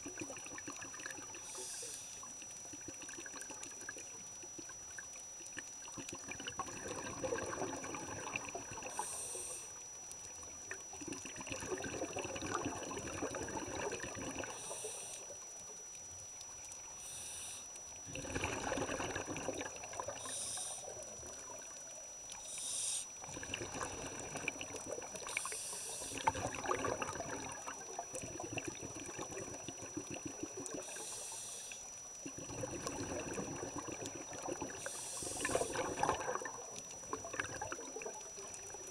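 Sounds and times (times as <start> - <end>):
exhaled bubbles underwater: 0.0 - 16.8, 17.9 - 38.9
regulator inhalation hiss: 1.4 - 2.3, 8.9 - 9.8, 14.5 - 15.4, 17.0 - 17.8, 20.2 - 21.0, 22.4 - 23.2, 25.2 - 26.4, 30.8 - 31.9, 34.8 - 35.9.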